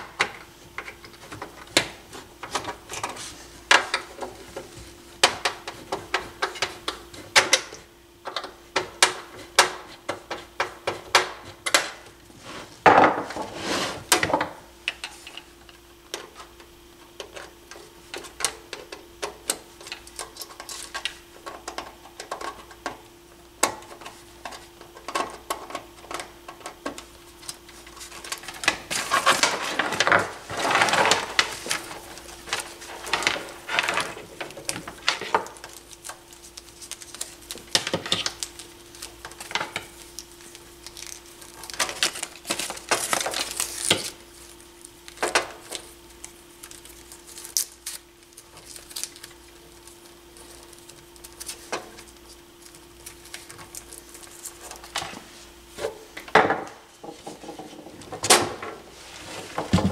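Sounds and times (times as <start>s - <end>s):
faint steady hum: 0.0s - 59.9s
scraping rustle: 12.3s - 14.1s.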